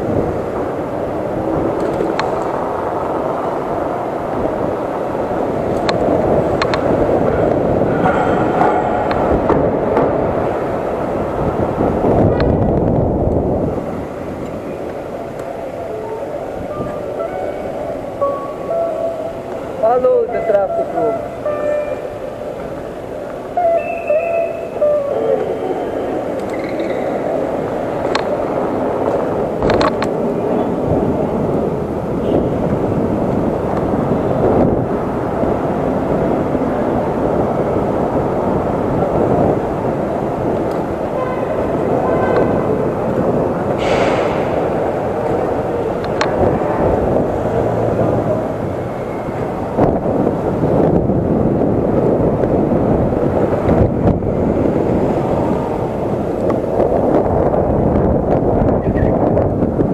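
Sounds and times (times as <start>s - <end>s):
wind rushing over microphone: 0.0s - 59.9s.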